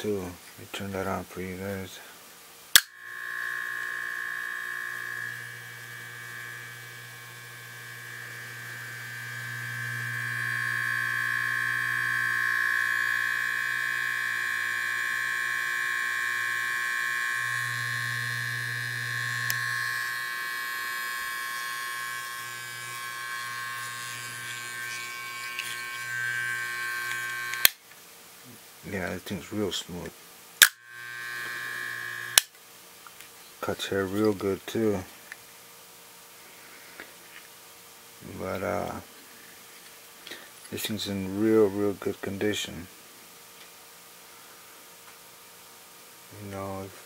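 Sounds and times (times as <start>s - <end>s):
electric hair clipper buzzing: 2.7s - 27.8s, 30.6s - 32.6s.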